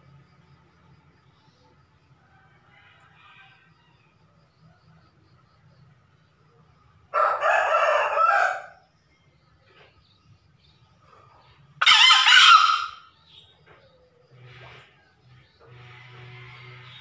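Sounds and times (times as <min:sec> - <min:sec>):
junglefowl crowing: 0:07.1 - 0:08.8, 0:11.8 - 0:13.2.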